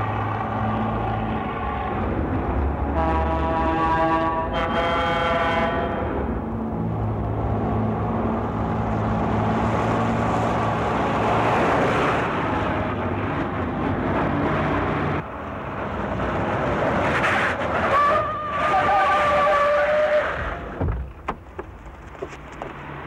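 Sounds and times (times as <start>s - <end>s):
truck diesel engines racing: 0.0s - 20.9s
truck horn blaring: 2.9s - 6.2s.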